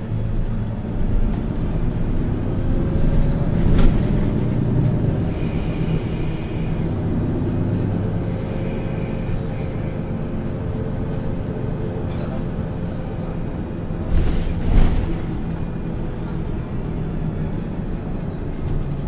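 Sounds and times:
bus engine running: 0.0s - 19.0s.

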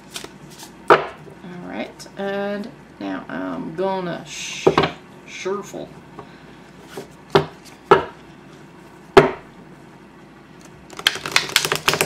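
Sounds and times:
cards being riffle-shuffled: 0.0s - 0.8s, 10.6s - 12.0s.

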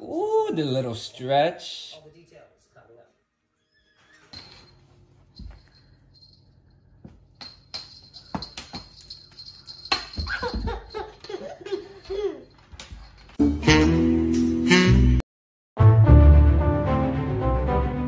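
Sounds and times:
baby laughing: 10.2s - 12.6s
music: 13.4s - 15.2s, 15.8s - 18.0s.

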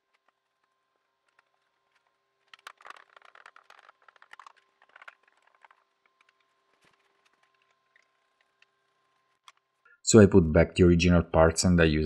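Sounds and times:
small metal parts rattling: 2.5s - 5.8s.

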